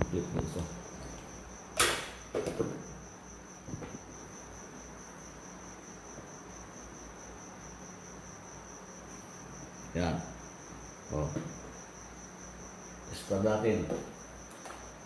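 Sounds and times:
cricket trilling: 0.0 - 15.0.

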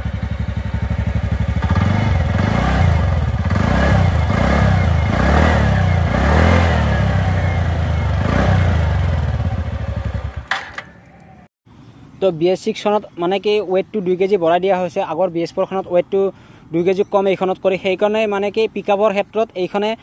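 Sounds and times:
scooter engine revving: 0.0 - 11.5.

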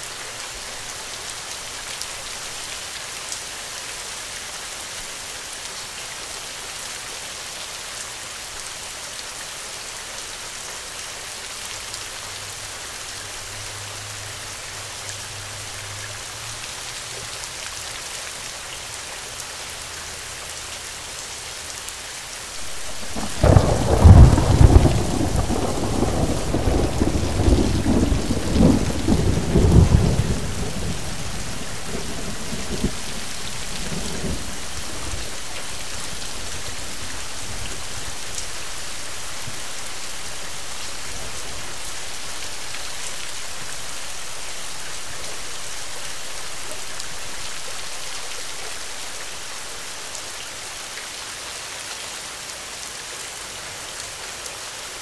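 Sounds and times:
steady rain: 0.0 - 55.0
thunder rumbling: 22.6 - 38.2.

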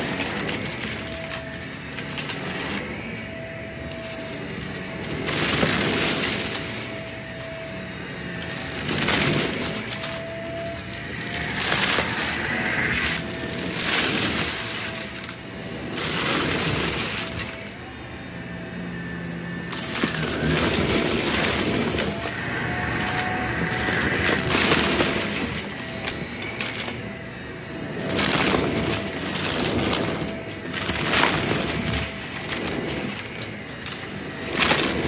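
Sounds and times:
shells and coins rattling in vacuum: 0.0 - 17.7, 19.7 - 35.0
vacuum motor whine: 0.0 - 35.0.

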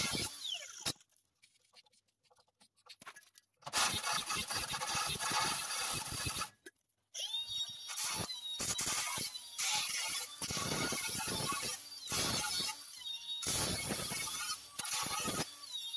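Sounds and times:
drill hole saw grinding metal: 0.0 - 1.0, 3.7 - 6.6, 7.2 - 15.9.

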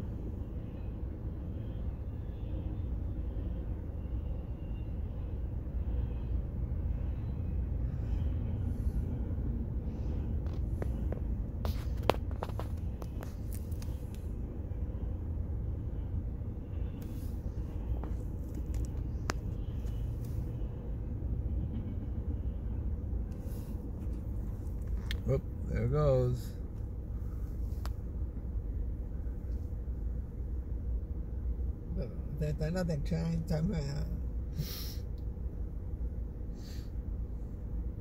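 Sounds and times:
train wheels rumbling on rail: 21.4 - 22.5.

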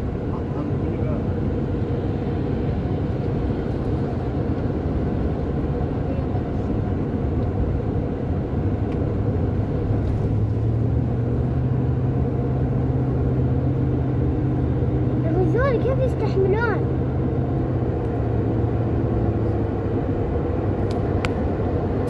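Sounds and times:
road and engine rumble in car: 0.0 - 22.0.

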